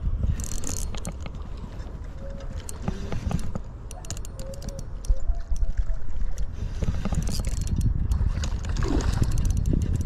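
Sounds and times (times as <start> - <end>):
fishing reel clicks: 0.3 - 1.3, 2.6 - 5.8, 7.0 - 8.3, 9.2 - 10.0.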